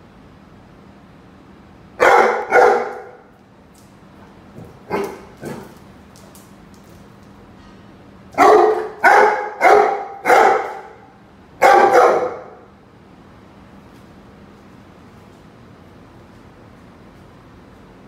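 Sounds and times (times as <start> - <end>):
dog barking: 2.0 - 3.3, 4.9 - 5.7, 8.4 - 12.7.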